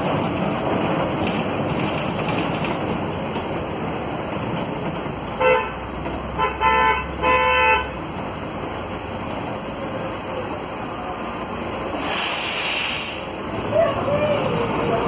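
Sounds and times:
bus running noise: 0.0s - 15.0s
vehicle horn honking: 5.4s - 5.8s, 6.4s - 8.0s.

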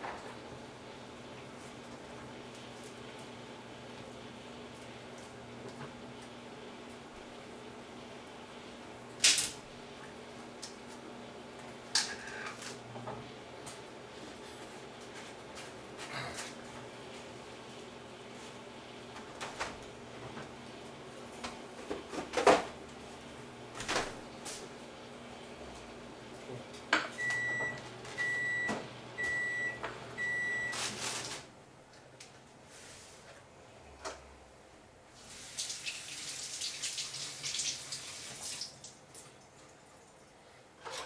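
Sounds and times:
appliance beeping: 27.0s - 31.3s.

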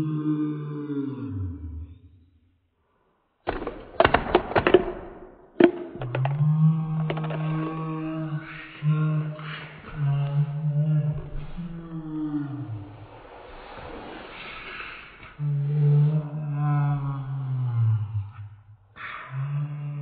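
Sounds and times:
low drawn-out voice holding notes: 0.0s - 1.9s, 6.0s - 13.2s, 15.4s - 18.4s, 19.0s - 20.0s
small hard objects clattering: 7.0s - 7.5s.

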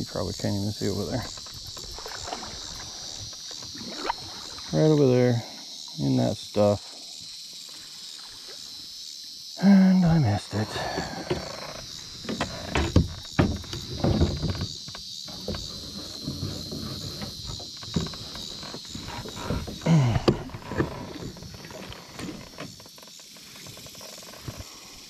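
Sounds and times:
insects trilling: 0.0s - 25.0s.

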